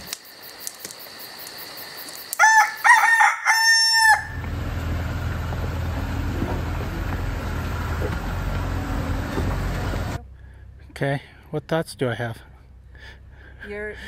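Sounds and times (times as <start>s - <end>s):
rooster crowing: 2.4s - 4.5s
steady low rumble: 4.4s - 14.0s.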